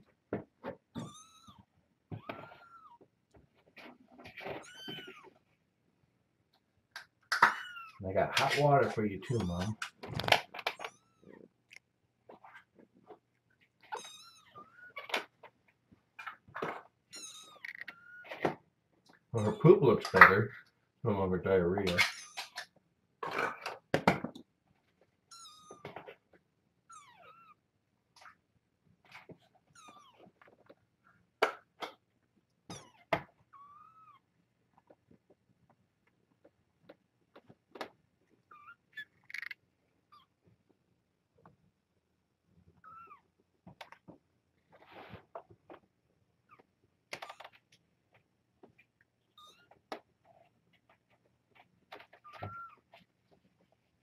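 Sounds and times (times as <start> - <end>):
cat meowing: 26.9 - 27.6, 32.7 - 34.2, 42.8 - 43.2.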